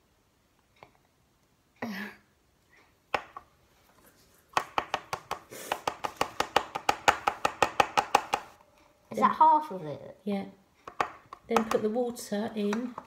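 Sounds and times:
plastic bottle tapping: 4.5s - 8.6s, 10.8s - 11.9s.

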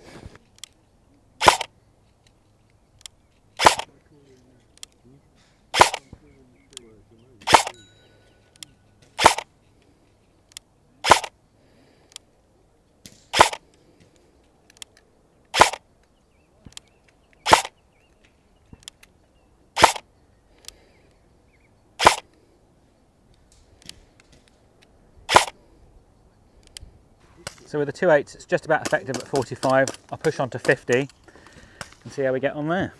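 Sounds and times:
airsoft gun shots: 1.4s - 1.7s, 3.6s - 3.9s, 5.7s - 6.2s, 7.4s - 7.8s, 9.0s - 9.5s, 11.0s - 11.3s, 13.0s - 13.6s, 15.5s - 15.8s, 17.4s - 17.8s, 19.8s - 20.0s, 22.0s - 22.3s, 25.3s - 25.6s.

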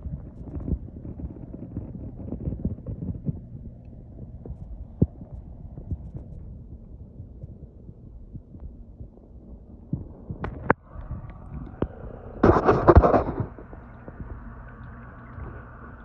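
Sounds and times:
low throbbing thumps: 0.0s - 16.0s
muffled underwater rumble: 0.0s - 16.0s
rush of water noise: 10.7s - 16.0s.

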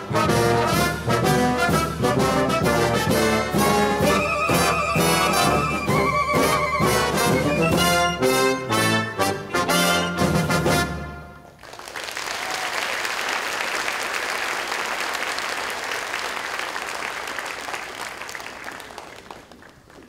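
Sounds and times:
audience applauding: 11.6s - 20.0s.

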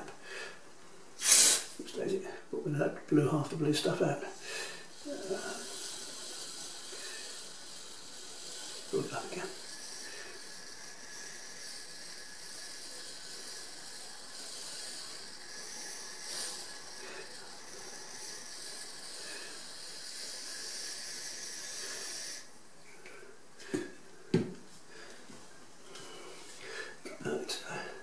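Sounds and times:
aerosol spray hissing: 1.2s - 1.8s, 4.4s - 22.6s.

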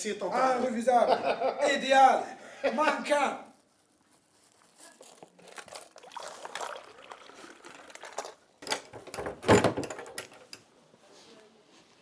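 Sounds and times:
tea pouring into glasses: 5.0s - 8.6s
knocks and clatter: 7.9s - 10.6s.

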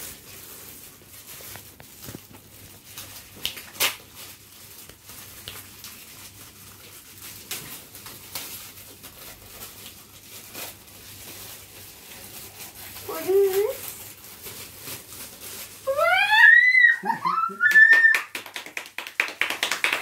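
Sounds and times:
plastic wrapping crinkling: 0.0s - 20.0s.

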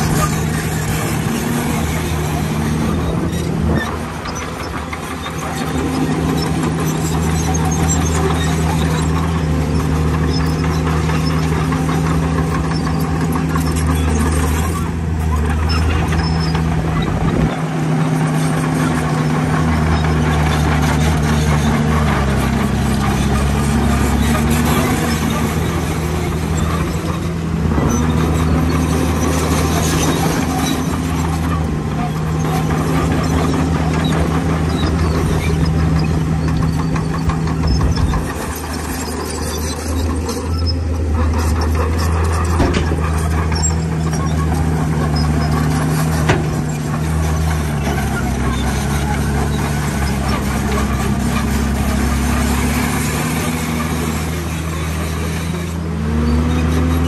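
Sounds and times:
heavy diesel machinery engine: 0.0s - 57.0s
mechanical clatter and rattle: 18.3s - 55.8s.

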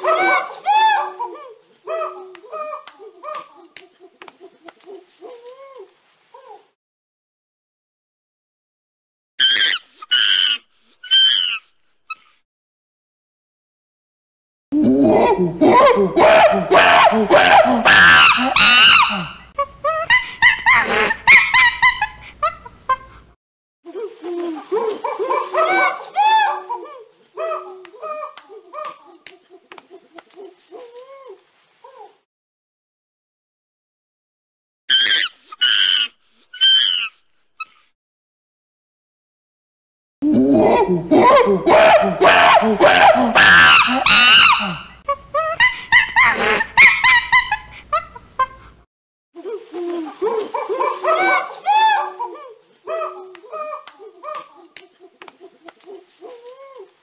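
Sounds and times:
primate yelping calls: 0.0s - 6.7s, 9.4s - 12.4s, 16.2s - 19.7s, 34.9s - 37.8s, 41.7s - 45.1s, 49.6s - 57.0s.

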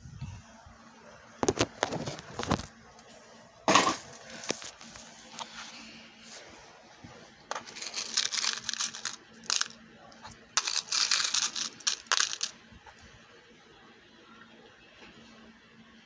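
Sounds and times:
metal charms clinking: 7.6s - 9.8s, 10.6s - 12.5s.

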